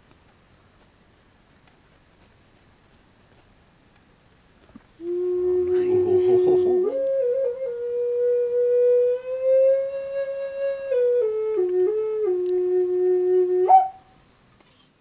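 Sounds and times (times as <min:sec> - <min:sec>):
flute-like wind instrument melody: 0:05.0 - 0:14.2.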